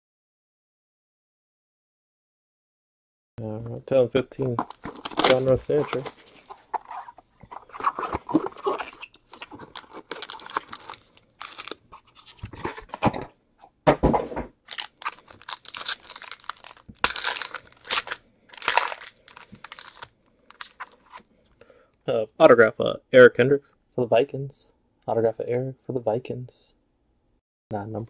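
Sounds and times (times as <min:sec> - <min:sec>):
foil wrapper crinkling and tearing: 0:04.6 - 0:12.4, 0:14.6 - 0:21.2.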